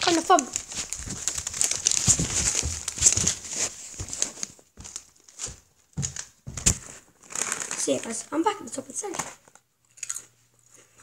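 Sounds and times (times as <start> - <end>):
crisp packet crinkling: 0.0 - 8.3
footsteps on stairs: 0.7 - 6.9.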